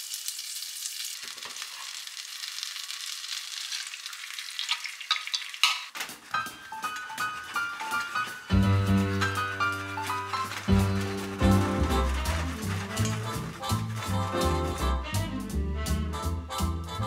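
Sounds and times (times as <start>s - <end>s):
egg being poured: 0.0s - 5.9s
butter sizzling in a frying pan: 0.0s - 6.0s
chopsticks clicking and scraping pan: 4.7s - 8.3s, 10.0s - 14.2s.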